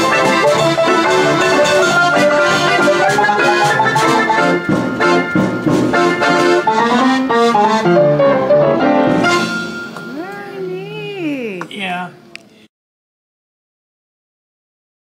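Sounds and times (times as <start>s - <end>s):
player piano playing a lively tune: 0.0s - 11.5s.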